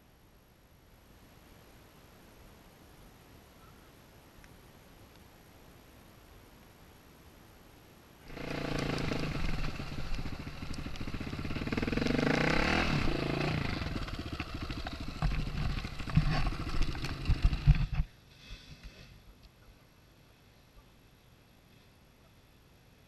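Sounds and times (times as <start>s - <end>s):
motorcycle engine revving: 8.3s - 18.0s.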